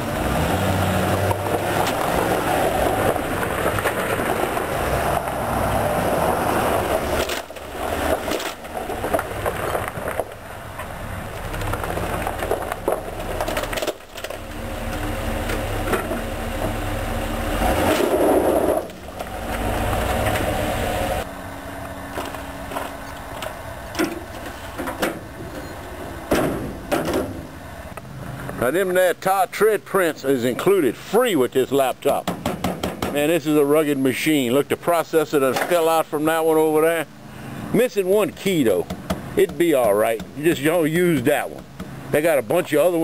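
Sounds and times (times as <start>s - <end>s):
truck engine running: 0.0s - 28.6s
tires crunching gravel: 0.0s - 32.2s, 33.1s - 43.0s.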